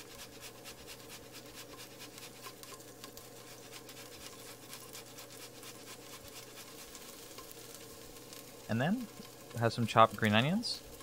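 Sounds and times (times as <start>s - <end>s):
ginger scraping on a grater: 0.0s - 7.5s
garlic frying in oil: 0.0s - 11.0s.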